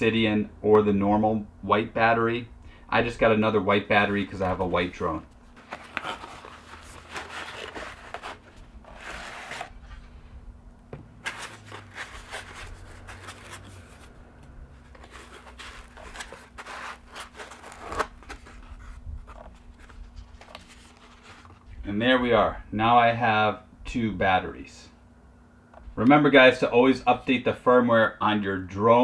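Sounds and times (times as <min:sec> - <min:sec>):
packaging rustling and tearing: 0:04.2 - 0:09.8, 0:11.2 - 0:14.2, 0:14.8 - 0:21.7.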